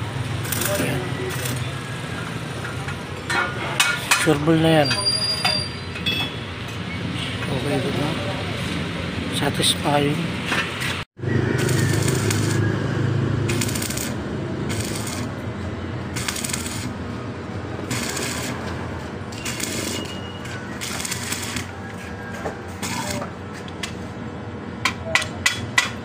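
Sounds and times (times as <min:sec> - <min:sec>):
arc welder crackling: 0:00.0 - 0:02.5, 0:11.4 - 0:12.8, 0:13.4 - 0:17.1, 0:17.7 - 0:21.9, 0:22.8 - 0:23.3.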